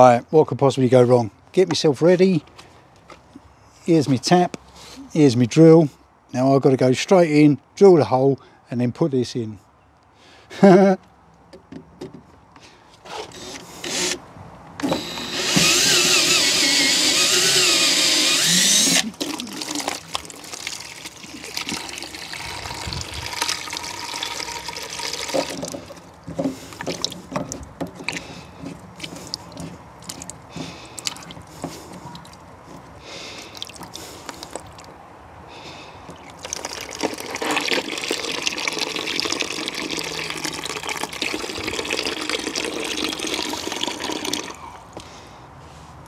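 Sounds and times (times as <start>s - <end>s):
tap clicks and knocks: 11.5s - 12.4s
water running into plastic bucket: 17.1s - 26.1s, 36.1s - 44.6s.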